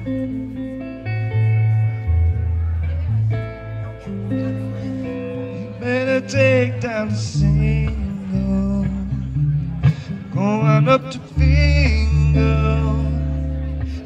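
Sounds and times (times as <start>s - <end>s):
electric bass guitar: 0.0s - 14.0s
guitar: 0.0s - 14.0s
man singing: 5.4s - 14.0s.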